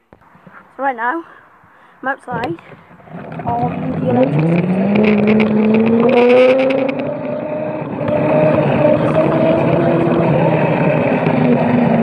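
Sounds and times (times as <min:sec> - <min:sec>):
electric scooter motor drone: 0:03.0 - 0:12.0.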